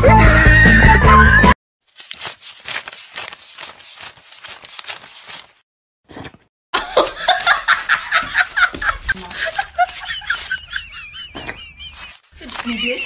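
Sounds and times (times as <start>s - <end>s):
person laughing: 6.8s - 13.0s.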